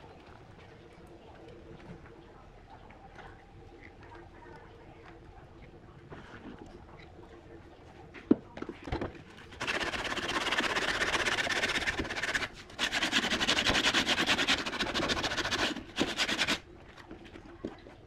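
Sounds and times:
sandpaper rubbing on wood: 0:09.6 - 0:16.6.

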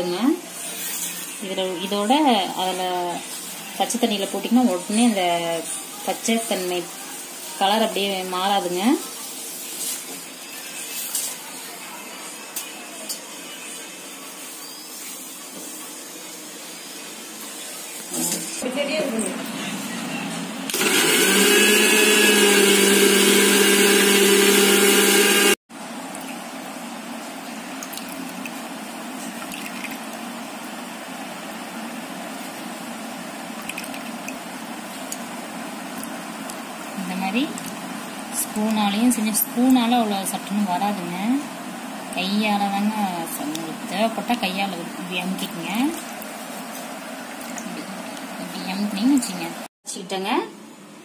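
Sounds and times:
hiss of leaves in hot water: 0:06.5 - 0:11.6.

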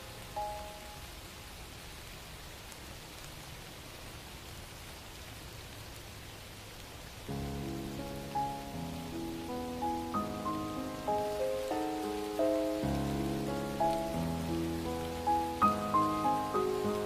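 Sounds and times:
music: 0:00.0 - 0:01.0, 0:07.3 - 0:17.0
steady rain hiss: 0:00.0 - 0:17.0.

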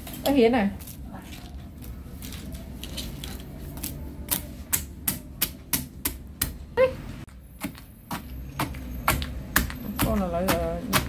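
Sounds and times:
knife chopping food: 0:07.6 - 0:11.0.

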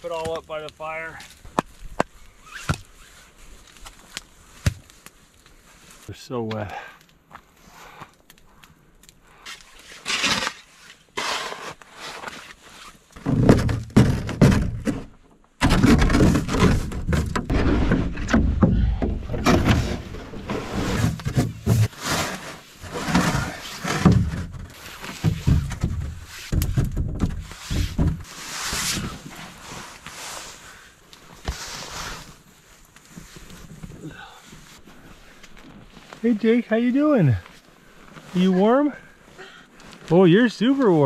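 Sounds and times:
camp gear handling: 0:09.6 - 0:30.6
person moving in snow: 0:27.4 - 0:41.0.

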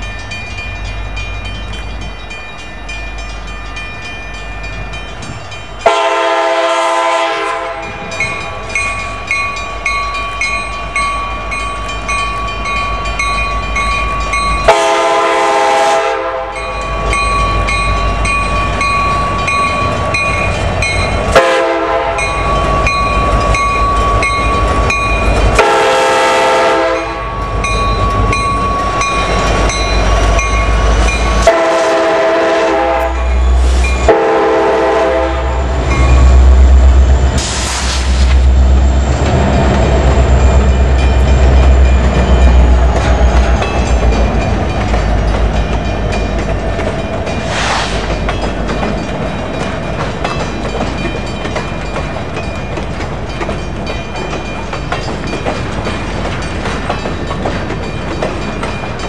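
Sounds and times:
locomotive engines rumbling: 0:00.0 - 0:59.0
locomotive air horn: 0:05.8 - 0:07.9, 0:14.7 - 0:16.6, 0:21.4 - 0:22.3, 0:25.6 - 0:27.2, 0:31.4 - 0:35.6.

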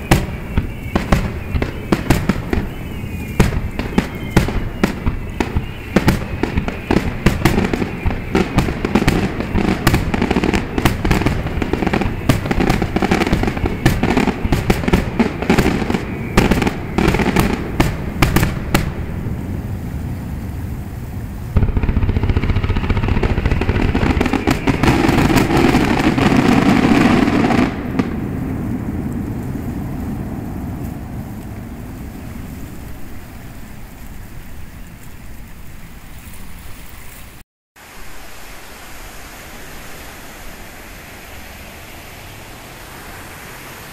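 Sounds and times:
fireworks hiss: 0:00.0 - 0:35.1
fireworks crackling: 0:00.0 - 0:37.4
surf rushing: 0:00.0 - 0:43.9.

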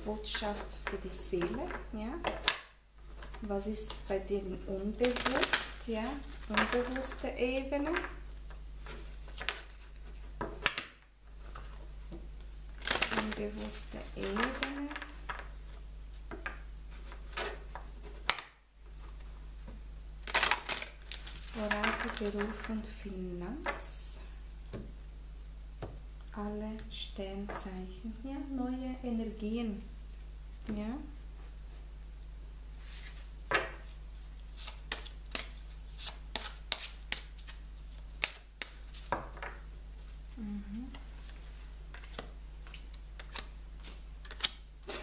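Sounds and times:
low steady hum: 0:00.0 - 0:45.0
cards rustling and shuffling: 0:00.3 - 0:04.1, 0:04.9 - 0:19.4, 0:20.2 - 0:22.9, 0:32.8 - 0:40.2, 0:40.9 - 0:45.0
cards shuffled and snapped: 0:34.6 - 0:37.6, 0:38.2 - 0:39.2, 0:41.9 - 0:45.0.

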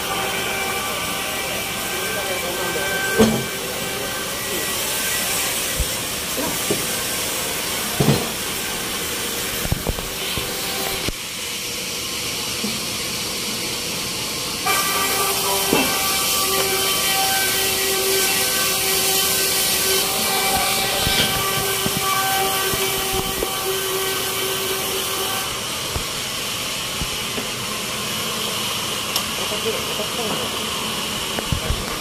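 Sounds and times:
machinery hum: 0:00.0 - 0:32.0
sawmill machinery hissing: 0:00.0 - 0:32.0.

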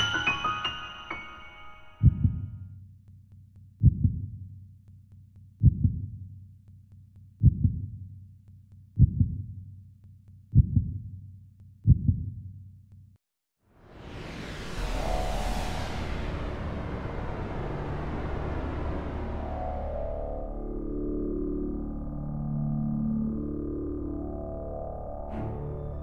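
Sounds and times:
heartbeat thumps: 0:02.0 - 0:02.6, 0:03.8 - 0:04.3, 0:05.6 - 0:06.2, 0:07.4 - 0:08.0, 0:09.0 - 0:09.5, 0:10.5 - 0:11.0, 0:11.8 - 0:12.3.

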